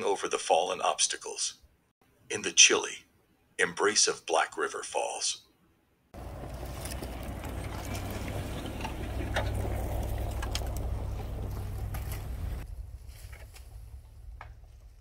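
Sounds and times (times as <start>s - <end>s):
truck engine low drone: 6.2s - 13.1s
tyres crunching snow: 6.2s - 15.0s.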